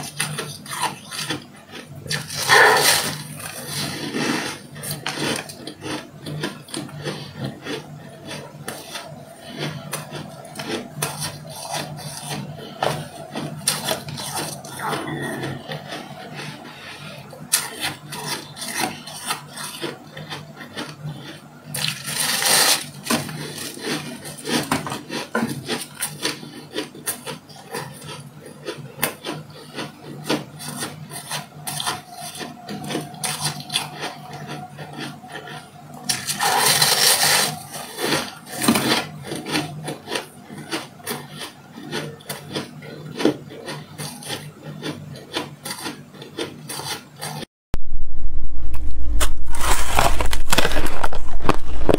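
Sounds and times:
shaved ice crunching: 0:00.0 - 0:06.8, 0:21.7 - 0:27.2, 0:36.1 - 0:42.6, 0:49.5 - 0:51.9.

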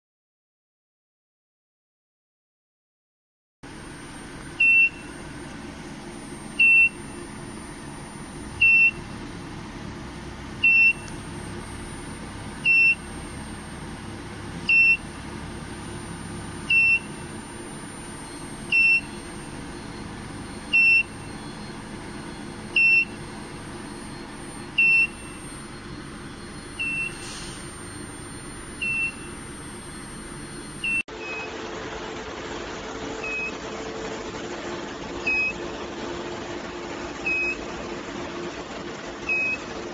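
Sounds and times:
steady hum: 0:03.6 - 0:37.9
alarm buzzer beeping: 0:03.7 - 0:31.5.

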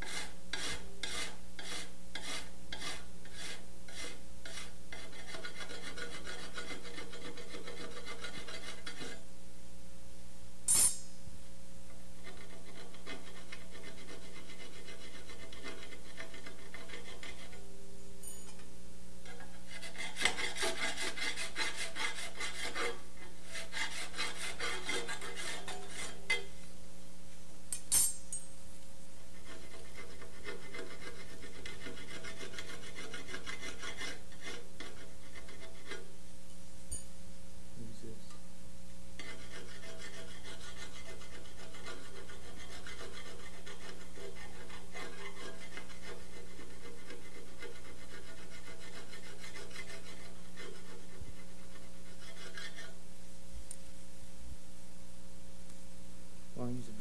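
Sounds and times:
file rasping on metal: 0:00.0 - 0:09.2, 0:12.2 - 0:17.7, 0:19.2 - 0:26.6, 0:29.3 - 0:36.2, 0:39.2 - 0:53.0.

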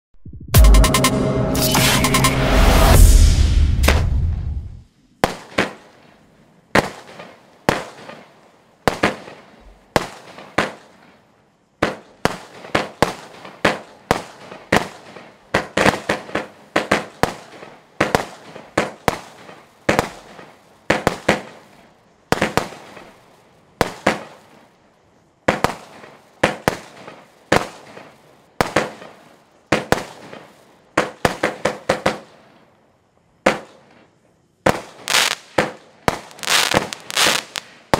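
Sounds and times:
firework cake reports: 0:00.3 - 0:04.8, 0:36.2 - 0:37.6.

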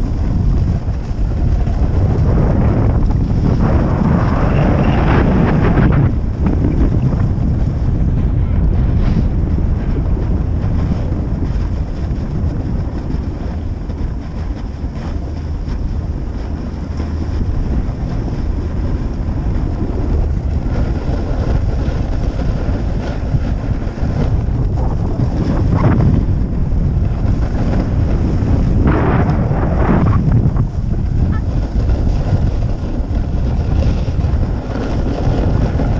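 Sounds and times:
wind buffeting microphone: 0:00.0 - 0:35.9
edges scraping snow: 0:27.4 - 0:35.9.

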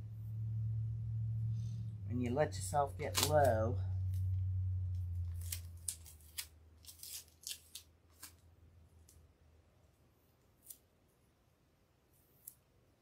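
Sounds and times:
low hum: 0:00.0 - 0:06.9
plastic tape crackling and clicking: 0:03.0 - 0:08.4.

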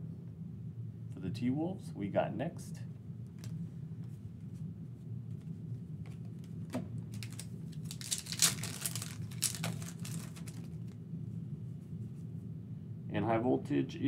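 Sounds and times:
foil pack tearing and crinkling: 0:07.1 - 0:11.0.

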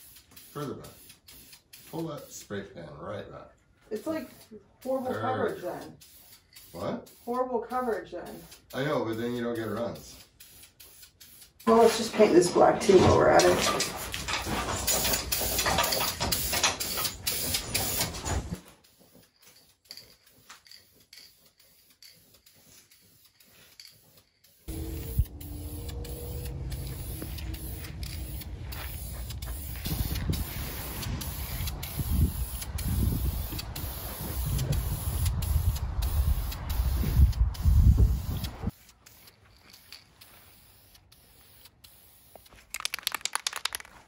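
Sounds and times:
spray paint can hissing: 0:00.0 - 0:02.4, 0:03.9 - 0:12.5, 0:14.8 - 0:44.0
low rumbling noise: 0:24.7 - 0:29.4.

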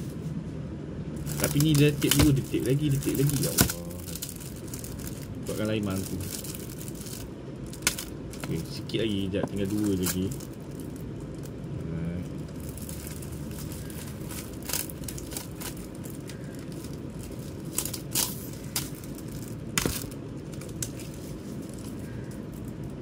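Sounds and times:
low hum: 0:00.0 - 0:23.0
plastic wrapping crinkling: 0:01.2 - 0:11.6, 0:12.3 - 0:23.0
plastic cases clicking: 0:01.3 - 0:04.4.

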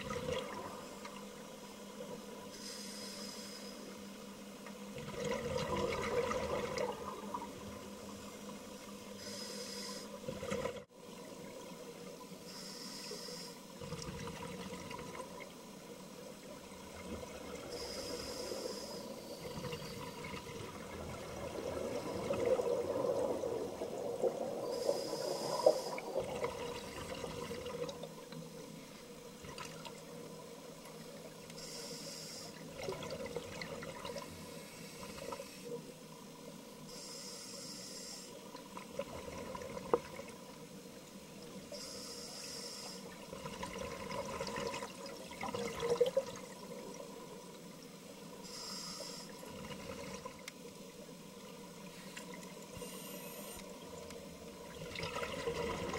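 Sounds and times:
faint steady hum: 0:00.0 - 0:55.9
regulator inhalation hiss: 0:02.5 - 0:04.0, 0:09.2 - 0:10.2, 0:12.5 - 0:13.6, 0:17.7 - 0:19.6, 0:24.6 - 0:26.2, 0:31.6 - 0:32.6, 0:36.9 - 0:38.4, 0:41.7 - 0:43.1, 0:48.4 - 0:49.4, 0:52.8 - 0:53.7
exhaled air bubbling: 0:04.9 - 0:07.7, 0:19.4 - 0:28.1, 0:43.2 - 0:47.0, 0:53.2 - 0:55.9.

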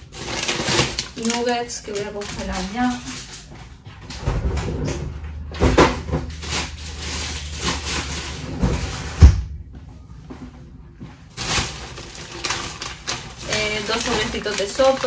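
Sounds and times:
freezer door opening and shutting: 0:00.0 - 0:03.4, 0:04.0 - 0:09.6
frozen food packets knocking: 0:00.0 - 0:03.8, 0:11.3 - 0:15.0.

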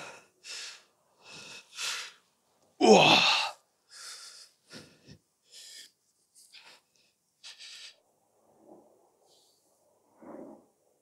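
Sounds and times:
man breathing hard: 0:00.0 - 0:02.2, 0:03.2 - 0:08.0
man grunting: 0:02.8 - 0:03.6.

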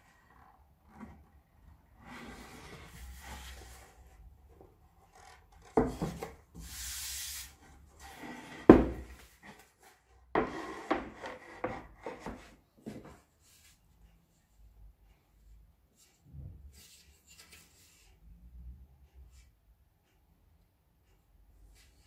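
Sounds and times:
wood rubbing and sliding on wood: 0:00.3 - 0:04.3, 0:05.1 - 0:13.7
boards knocking on table: 0:08.7 - 0:09.1.

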